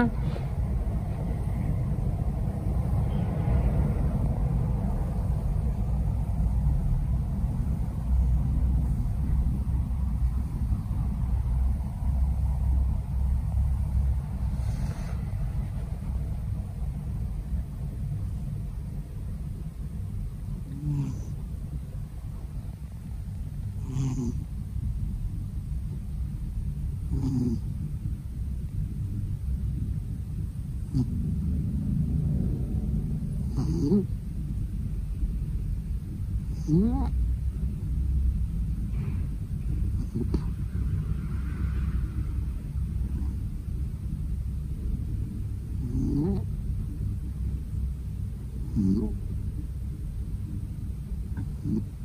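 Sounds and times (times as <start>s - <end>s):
cat purring: 0.0s - 52.0s
steady low rumble: 0.0s - 52.0s
cat snoring: 7.6s - 10.8s, 14.3s - 15.8s, 20.5s - 21.5s, 23.8s - 24.6s, 27.0s - 27.8s, 30.8s - 31.5s, 33.4s - 34.1s, 36.4s - 37.2s, 39.8s - 40.7s, 43.0s - 43.5s, 45.7s - 46.6s, 48.6s - 49.3s, 51.4s - 52.0s.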